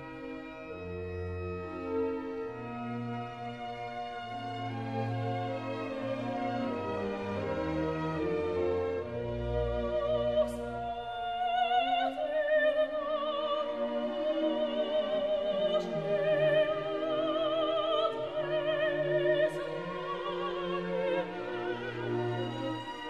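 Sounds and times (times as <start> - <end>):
operatic singing with vibrato: 9.0 - 23.0.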